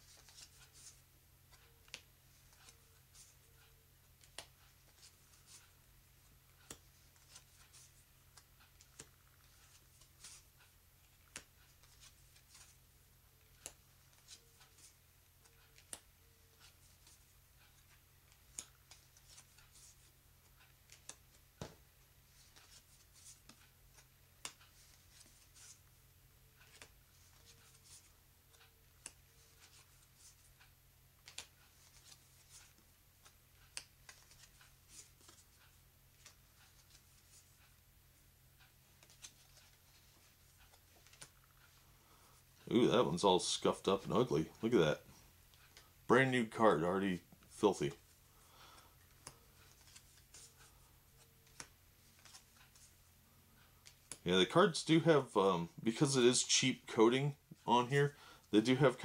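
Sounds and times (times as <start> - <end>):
playing cards laid on wooden table: 45.6 - 53.0.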